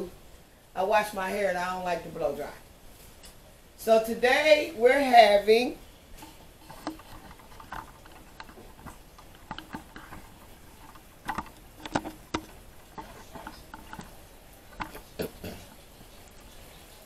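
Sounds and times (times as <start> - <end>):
faint clicks and taps: 6.2 - 17.0.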